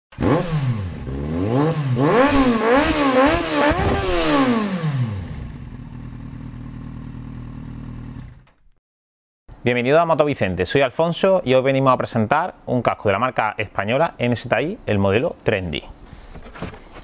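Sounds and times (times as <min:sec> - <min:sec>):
motorcycle engine revving and idling: 0:00.1 - 0:08.7.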